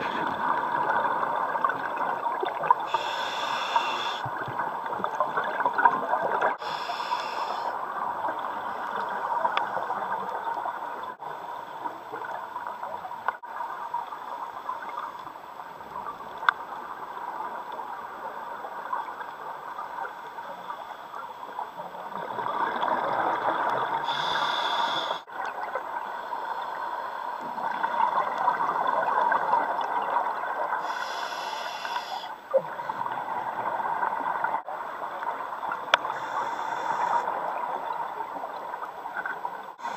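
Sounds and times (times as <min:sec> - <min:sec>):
regulator inhale hiss: 0:02.9 - 0:04.3, 0:06.6 - 0:07.8, 0:24.0 - 0:25.3, 0:30.8 - 0:32.4, 0:36.0 - 0:37.4.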